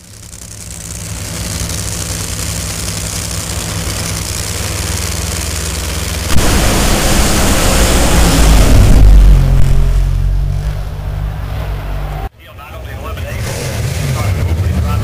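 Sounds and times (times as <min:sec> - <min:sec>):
drag racing engines roaring: 0:00.0 - 0:15.0.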